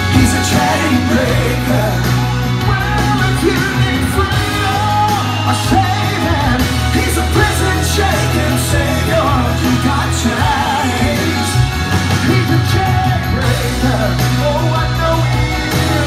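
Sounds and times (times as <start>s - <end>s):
backing track with bass line: 0.0s - 16.0s
man singing into microphone: 0.0s - 16.0s.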